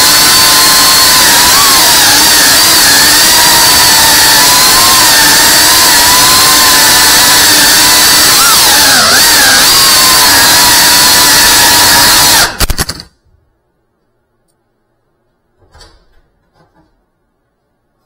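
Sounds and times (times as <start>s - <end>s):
drone motors whining: 0.0s - 12.7s.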